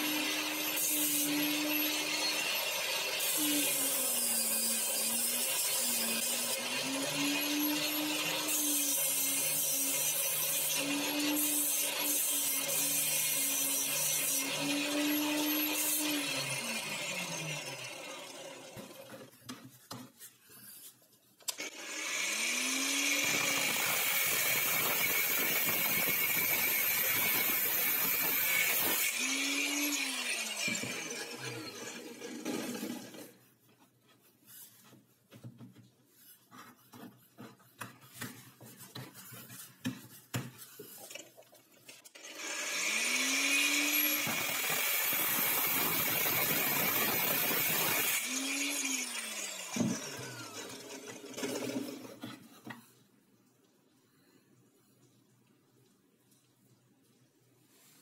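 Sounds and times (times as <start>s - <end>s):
grinder winding down: 42.2s - 52.1s.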